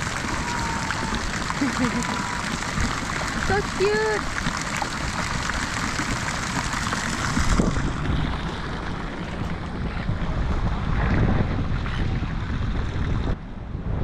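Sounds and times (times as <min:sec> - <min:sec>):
water running in fountain pool: 0:00.0 - 0:13.4
wind buffeting microphone: 0:05.3 - 0:14.0.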